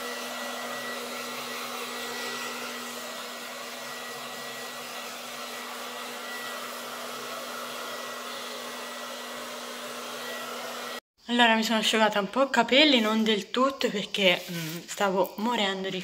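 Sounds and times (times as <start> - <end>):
hair dryer running: 0.0 - 11.0.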